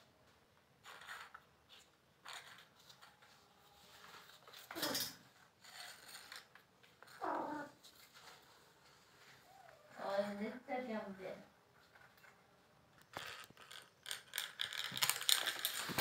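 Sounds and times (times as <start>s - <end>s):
bangle scraping on concrete floor: 0.8s - 8.5s, 13.0s - 16.0s.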